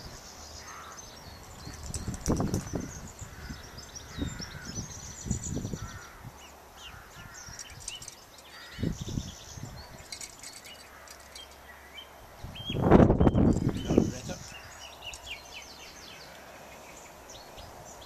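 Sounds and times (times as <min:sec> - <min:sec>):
birds chirping and calling: 0:00.0 - 0:18.0.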